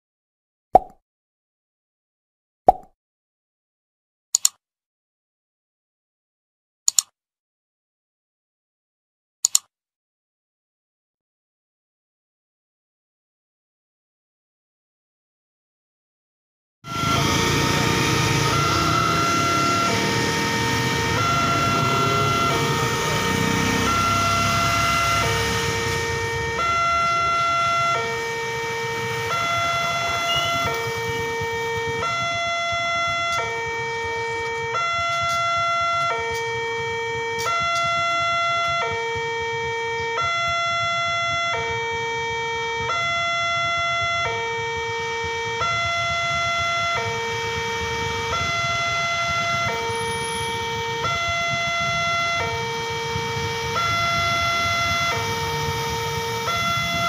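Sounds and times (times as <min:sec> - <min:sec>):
level crossing two-tone alarm: 0:16.8 - 0:57.0
broad rumble: 0:16.9 - 0:34.7.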